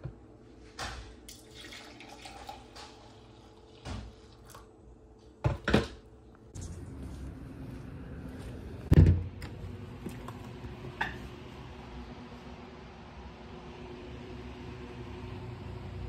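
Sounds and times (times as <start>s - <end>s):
coffee pouring into mug: 1.3s - 4.6s.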